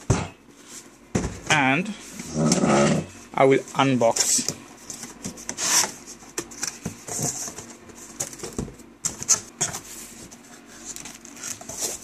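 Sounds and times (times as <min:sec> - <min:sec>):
cardboard flaps scraping and rustling: 0:04.0 - 0:12.0.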